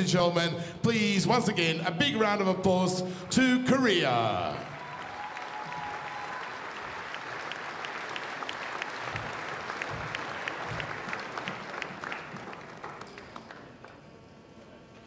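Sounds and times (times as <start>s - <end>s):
crowd applause: 4.6s - 13.9s.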